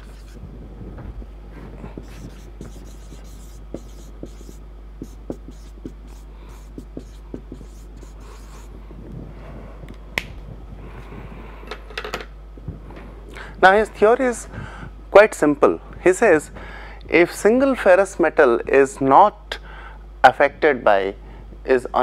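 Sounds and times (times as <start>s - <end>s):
marker writing on whiteboard: 0.0s - 0.4s, 2.0s - 8.7s
steady low hum: 0.0s - 22.0s.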